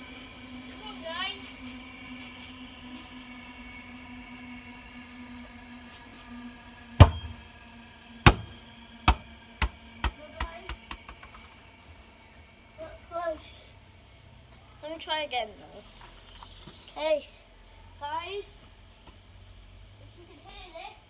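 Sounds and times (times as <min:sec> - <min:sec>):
faint steady hum: 0:00.0 - 0:21.0
ball bouncing: 0:08.3 - 0:11.4.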